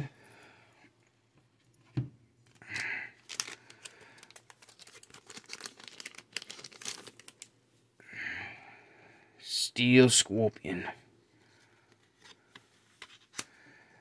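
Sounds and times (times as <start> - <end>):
foil wrapper crinkling: 2.4 - 7.5
trading cards rustling: 2.4 - 7.5.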